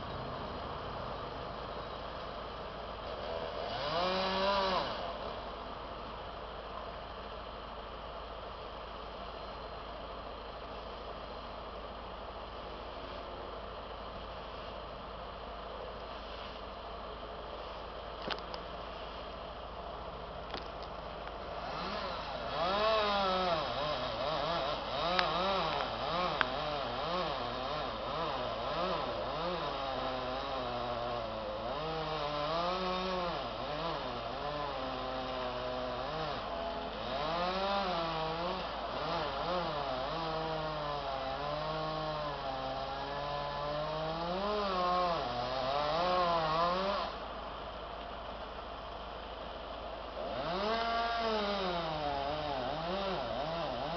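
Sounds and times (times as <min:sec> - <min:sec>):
chainsaw revving: 0:03.1 - 0:05.3, 0:21.5 - 0:47.2, 0:50.2 - 0:53.9.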